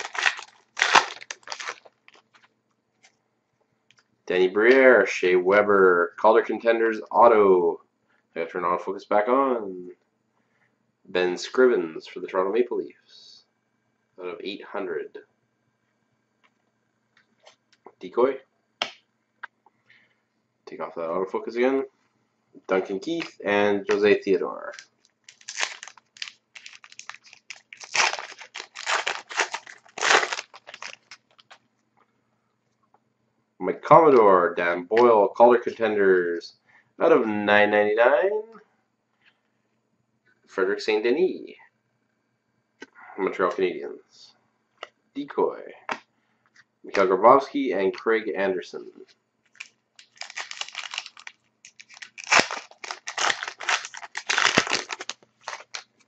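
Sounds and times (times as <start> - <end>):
card pack wrapper crinkling and tearing: 0.0 - 2.4, 22.8 - 31.6, 49.5 - 56.0.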